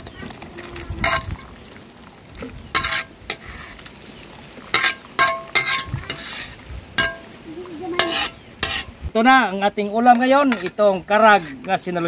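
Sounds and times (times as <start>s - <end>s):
soup pouring and splashing: 0.0s - 9.0s.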